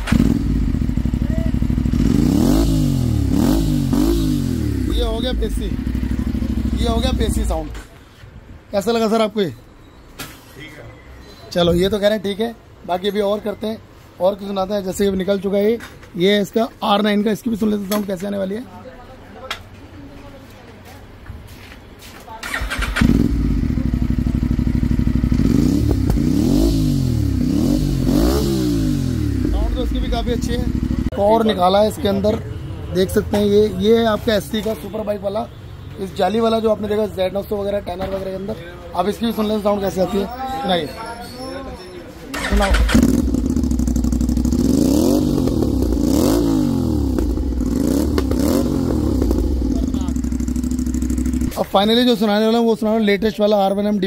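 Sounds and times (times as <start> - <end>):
motorcycle engine idling and revving: 0.0 - 7.8, 22.4 - 32.4, 42.3 - 52.0.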